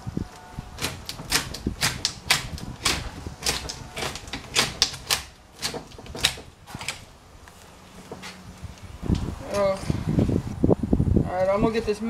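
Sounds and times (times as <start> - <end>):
hedge shears snipping: 0.8 - 7.0.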